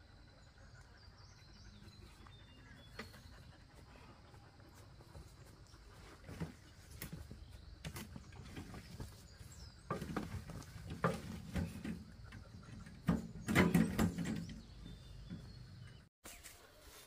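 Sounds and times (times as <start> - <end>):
wheelbarrow tray knocking: 9.9 - 15.5.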